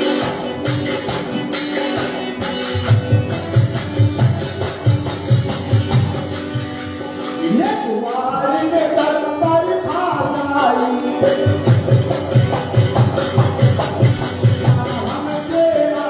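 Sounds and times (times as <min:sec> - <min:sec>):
hand drum beat: 0:00.0 - 0:07.8, 0:11.2 - 0:16.0
harmonium melody: 0:00.0 - 0:16.0.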